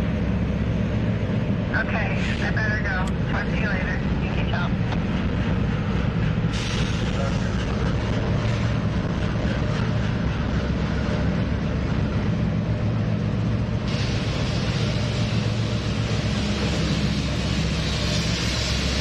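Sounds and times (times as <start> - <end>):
locomotive engines droning: 0.0 - 19.0
rushing rumble of passing train: 0.0 - 19.0.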